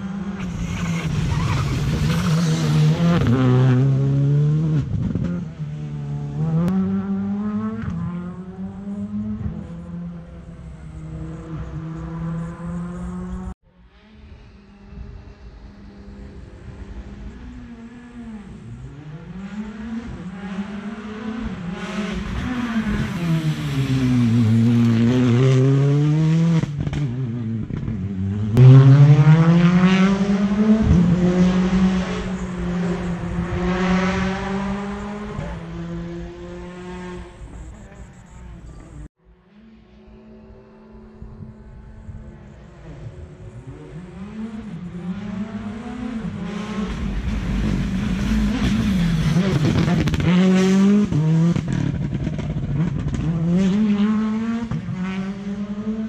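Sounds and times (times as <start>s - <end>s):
rally cars passing at full speed: 0.0s - 56.0s.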